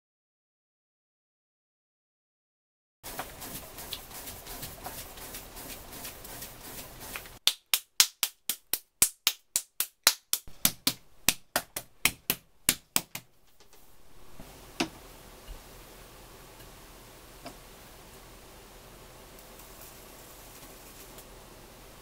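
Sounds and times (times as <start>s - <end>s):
hands slapping clay: 7.2s - 13.3s.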